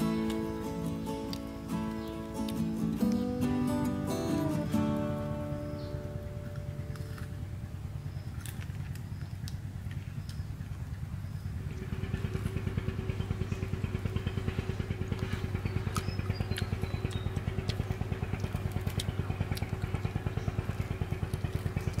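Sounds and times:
sharp clicks: 0:00.0 - 0:07.4
small engine running: 0:00.0 - 0:22.0.

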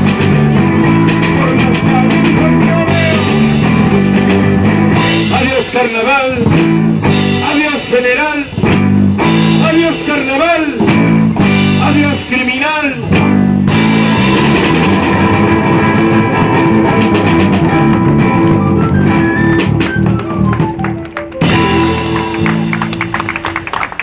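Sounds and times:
amplified acoustic guitars: 0:00.0 - 0:20.7
drum: 0:00.0 - 0:23.7.

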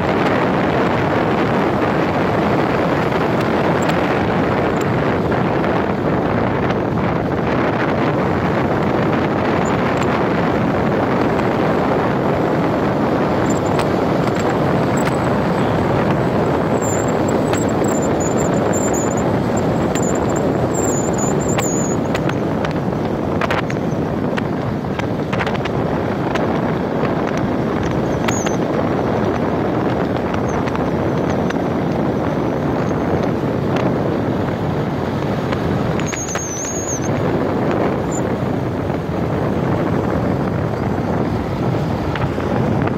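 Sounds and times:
motorcycle road noise: 0:00.0 - 0:42.9
wind on microphone: 0:00.0 - 0:42.9
faint high wavering whistle: 0:16.8 - 0:19.2, 0:19.9 - 0:22.0, 0:36.0 - 0:37.1.

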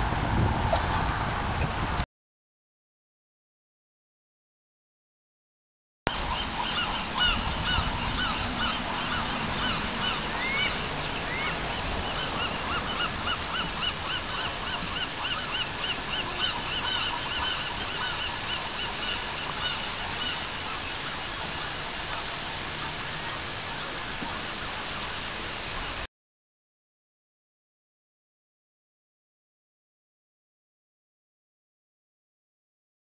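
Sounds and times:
higher rising bird calls: 0:06.1 - 0:21.0
waterbirds honking: 0:06.1 - 0:26.1.

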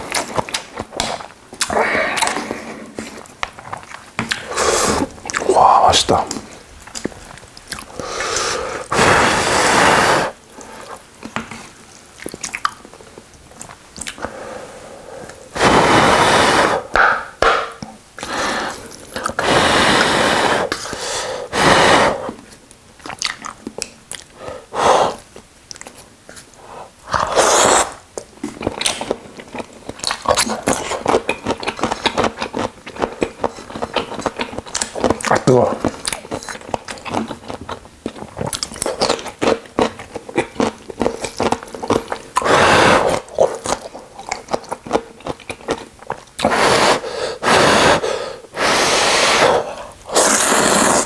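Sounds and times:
noodles slurped: 0:27.0 - 0:28.0, 0:45.4 - 0:51.0.

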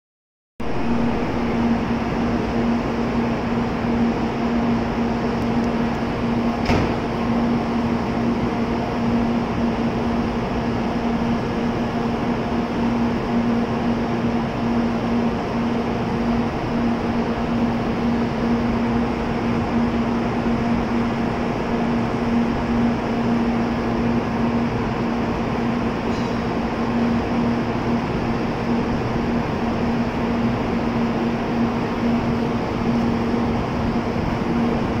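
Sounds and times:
train equipment humming: 0:00.6 - 0:35.0.

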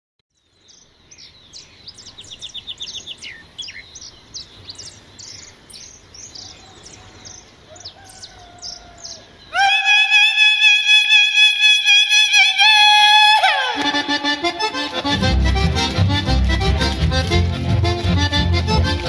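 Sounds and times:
birds chirping: 0:00.3 - 0:19.0
long drawn-out bird call: 0:00.7 - 0:15.1.

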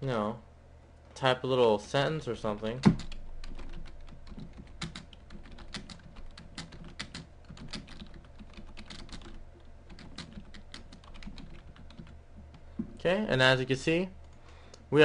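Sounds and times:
faint steady hum: 0:00.0 - 0:15.0
keyboard typing clicks: 0:02.8 - 0:12.6.

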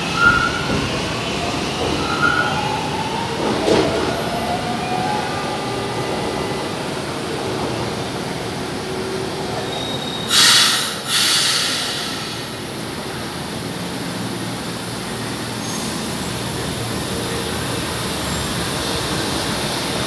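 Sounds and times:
train rumbling: 0:00.0 - 0:20.0
bursts of hissing air: 0:10.3 - 0:12.6.

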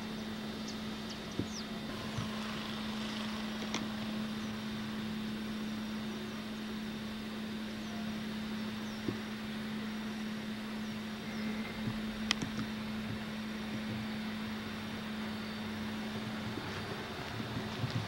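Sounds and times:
constant low hum: 0:00.0 - 0:18.0
steady background hiss: 0:00.0 - 0:18.0.

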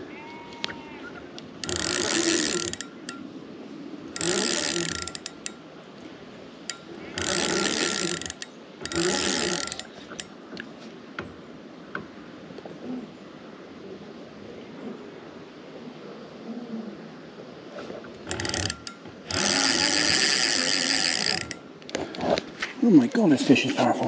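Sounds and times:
fishing reel whirring and clicking: 0:01.6 - 0:03.3, 0:04.1 - 0:05.6, 0:06.7 - 0:10.3, 0:18.2 - 0:21.7.

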